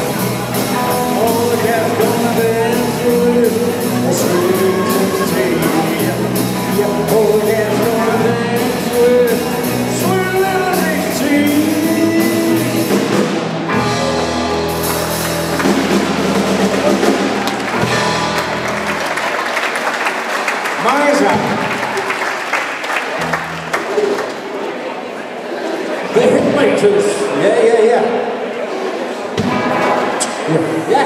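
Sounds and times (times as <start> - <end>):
live rock band playing: 0.0 - 19.8, 23.1 - 24.0, 29.4 - 31.0
male lead vocal: 0.8 - 13.2
audience applauding: 14.6 - 25.0.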